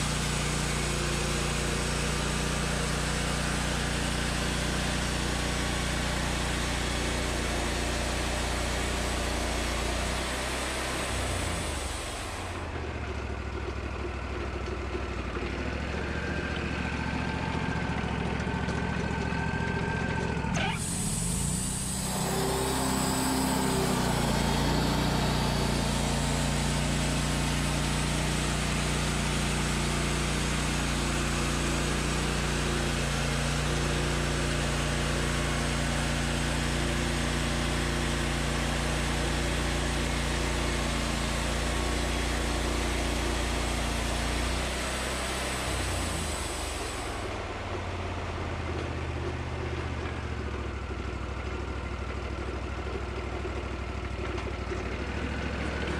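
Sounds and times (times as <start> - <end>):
band sawmill running: 0.0 - 55.9
thin whine: 20.5 - 27.4.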